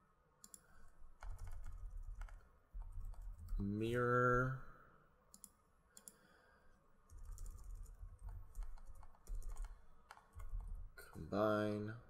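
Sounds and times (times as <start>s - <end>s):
computer keyboard typing: 0.4s - 3.6s, 7.1s - 10.8s.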